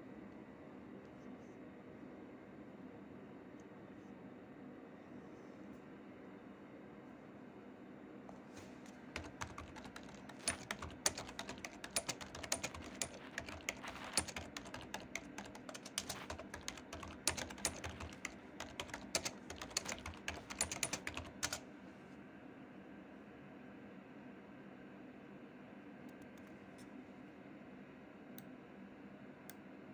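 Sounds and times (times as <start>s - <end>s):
faint steady hum: 0.0s - 29.9s
keyboard key clicks: 9.2s - 21.6s.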